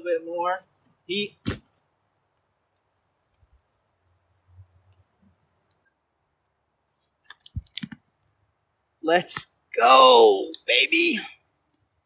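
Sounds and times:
faint clicks: 1.7 - 8.4.

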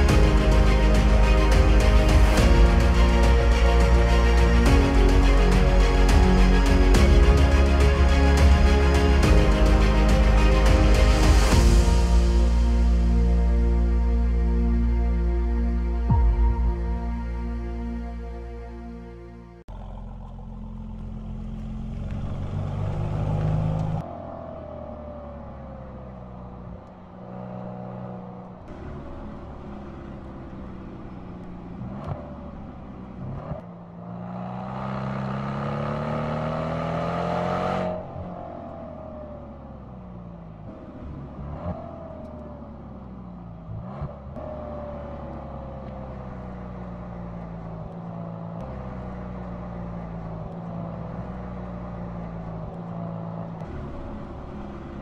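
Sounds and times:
car engine revving through gears: 19.7 - 55.0.

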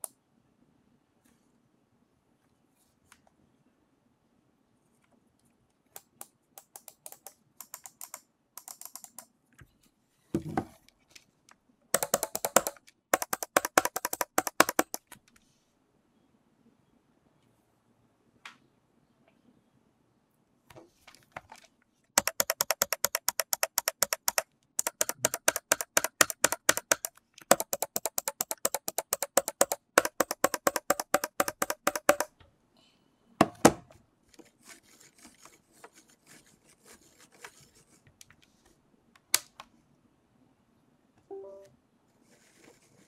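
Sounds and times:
rapid trackball button clicks: 22.2 - 32.3.

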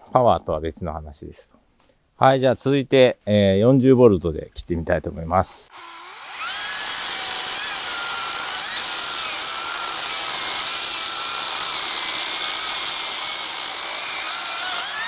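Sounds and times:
chainsaw cutting through log: 5.7 - 15.0
electric motor whine: 5.7 - 15.0.

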